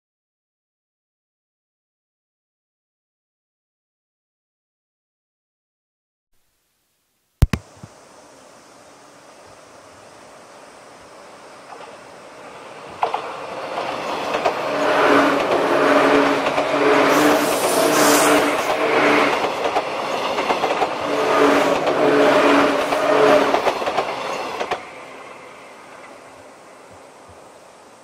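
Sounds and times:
sharp click: 7.4s - 7.7s
train passing at speed: 8.7s - 28.0s
wheels clickety-clack: 12.9s - 17.9s, 18.6s - 24.9s.

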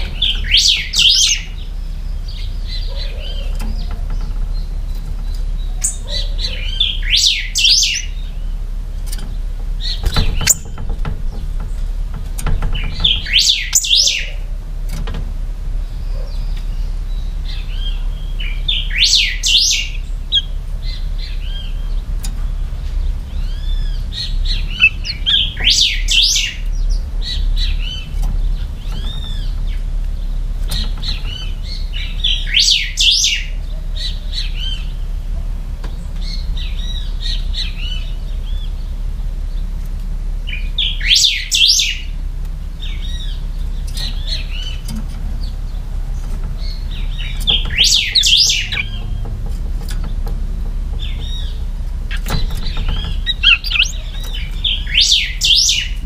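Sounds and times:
bird whistled song: 0.0s - 3.9s, 4.5s - 8.6s, 12.9s - 14.5s, 16.0s - 22.0s, 23.4s - 28.1s, 30.8s - 35.0s, 40.5s - 42.2s, 46.6s - 49.2s, 51.0s - 56.0s
bird call notes: 0.0s - 8.6s, 12.8s - 14.5s, 15.9s - 22.6s, 23.3s - 35.2s, 40.4s - 42.2s, 46.6s - 49.4s, 51.0s - 56.0s.

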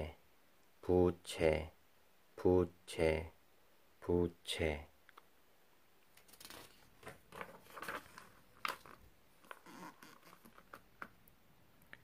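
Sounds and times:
paper page rustling: 6.1s - 10.9s
page slapping down: 6.2s - 9.6s.

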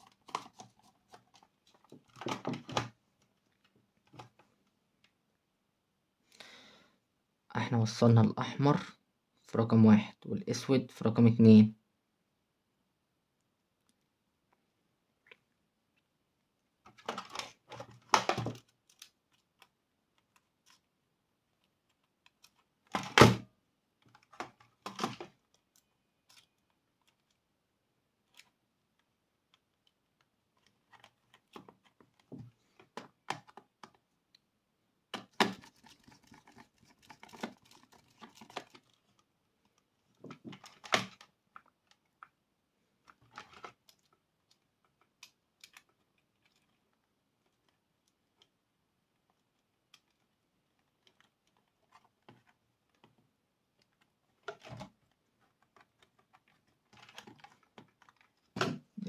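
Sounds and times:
hands handling plastic handset: 16.9s - 20.9s, 21.5s - 23.1s, 24.0s - 27.4s, 35.1s - 42.4s, 43.0s - 58.6s.

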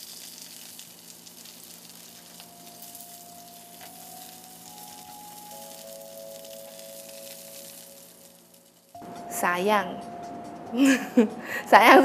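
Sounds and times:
meat sizzling on grill pan: 0.0s - 9.0s
soft background music: 2.2s - 12.0s.

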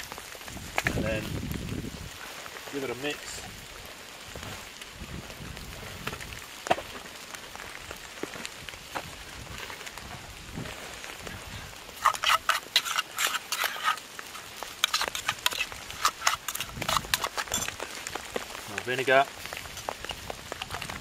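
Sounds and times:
steady rain: 0.0s - 21.0s
fingers mixing leaves in bowl: 12.0s - 17.9s.

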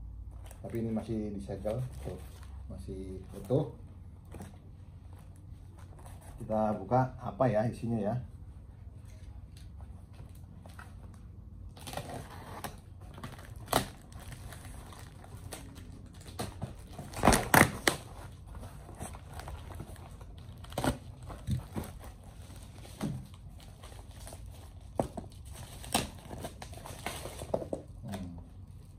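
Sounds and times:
packing tape tearing: 11.7s - 28.3s.

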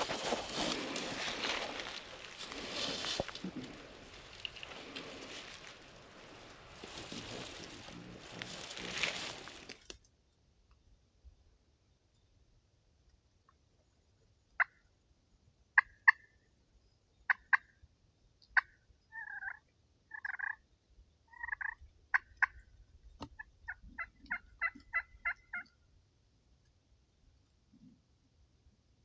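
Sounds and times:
turkey clucking: 0.0s - 9.6s, 18.6s - 20.6s, 21.3s - 22.6s, 23.3s - 25.7s
turkey yelping: 18.6s - 20.6s, 21.3s - 22.6s, 23.4s - 25.7s.

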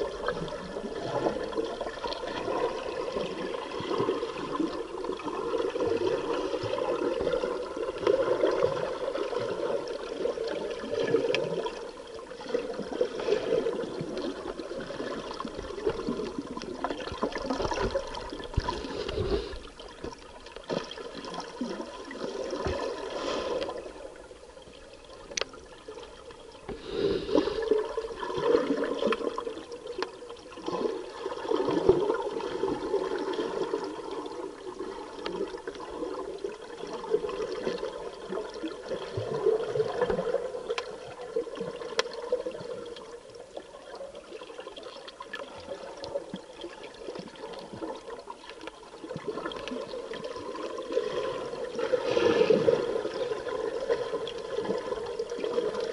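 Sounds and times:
bubbles gurgling underwater: 0.0s - 55.9s
breathing through a regulator: 18.6s - 19.9s, 23.0s - 24.1s, 26.7s - 28.2s, 51.8s - 53.2s.

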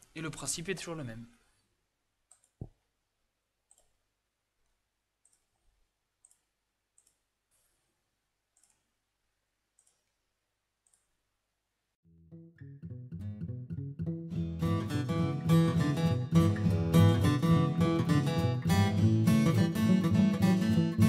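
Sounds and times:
computer mouse clicks: 2.3s - 2.8s, 3.7s - 4.0s, 5.2s - 5.6s, 6.2s - 7.8s, 8.5s - 8.9s, 9.7s - 10.2s, 10.8s - 11.2s.

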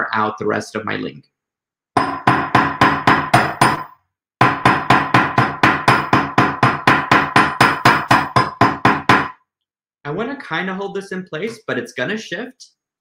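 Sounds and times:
hammer striking wire on anvil: 2.0s - 9.3s.

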